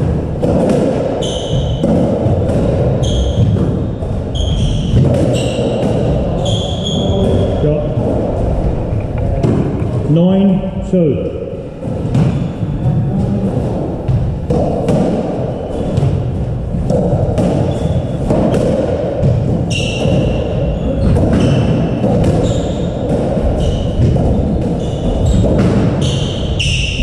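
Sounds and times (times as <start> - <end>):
squash ball thudding: 0.0 - 10.2, 11.7 - 27.0
shoes squeaking on wooden floor: 1.2 - 2.0, 2.6 - 7.7, 19.6 - 27.0.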